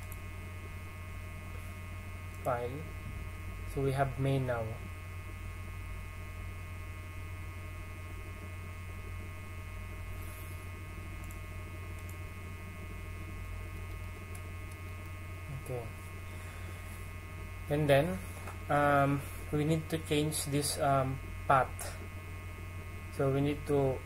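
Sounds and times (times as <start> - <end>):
faint clicks: 0.0 - 0.2, 11.2 - 12.2
electrical mains hum: 0.0 - 24.0.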